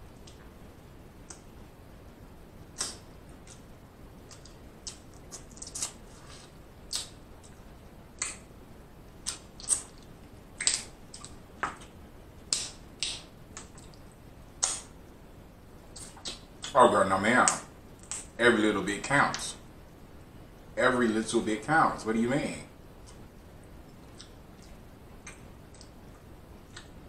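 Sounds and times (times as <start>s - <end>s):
crab shell snapping and crackling: 2.7s - 3.6s, 4.3s - 6.0s, 9.2s - 11.9s, 12.5s - 14.0s, 14.6s - 14.9s, 17.4s - 18.3s
chewing: 23.8s - 27.0s.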